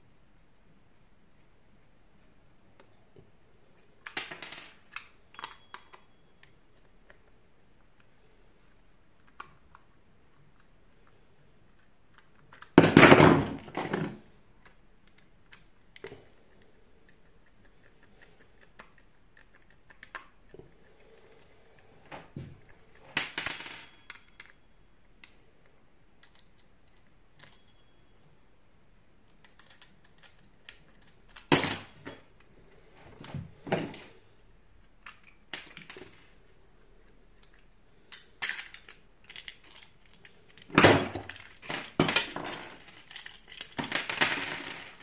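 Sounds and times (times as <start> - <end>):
metal screws clattering on desk: 29.3 - 32.2, 37.4 - 45.0.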